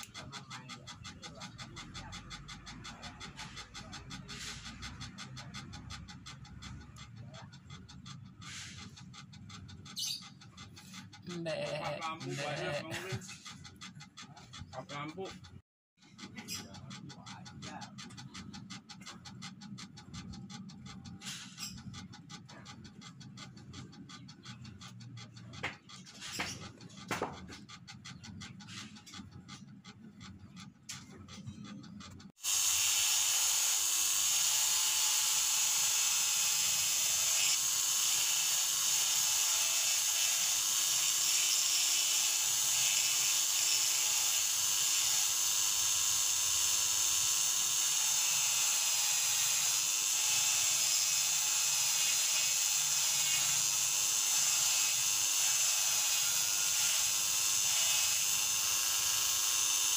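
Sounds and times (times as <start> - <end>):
bit grinding wood: 0.0 - 59.9
electric rotary tool whining: 32.4 - 59.9.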